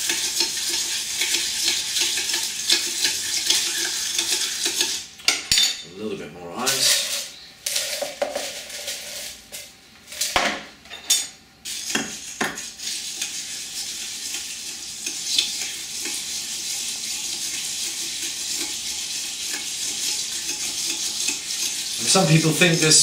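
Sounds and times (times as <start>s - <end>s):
spoon stirring crushed ice: 0.0s - 5.0s, 6.5s - 10.4s, 11.7s - 23.0s
crushed ice clinking into metal cup: 6.6s - 9.4s.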